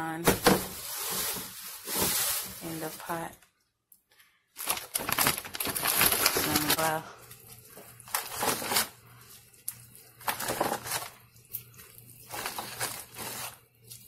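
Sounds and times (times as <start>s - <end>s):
plastic bag crinkling: 0.4s - 3.4s, 4.6s - 14.0s.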